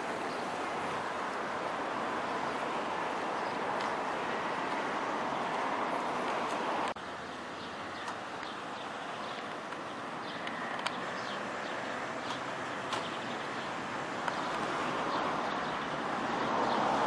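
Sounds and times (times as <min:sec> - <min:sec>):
small birds chirping: 0:07.2 - 0:16.0.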